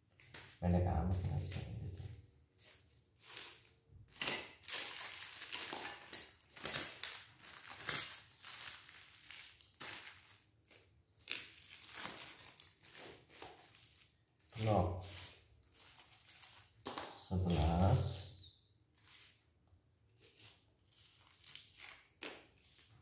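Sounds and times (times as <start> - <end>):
plastic bags crinkling: 2.0 - 17.0, 20.8 - 23.0.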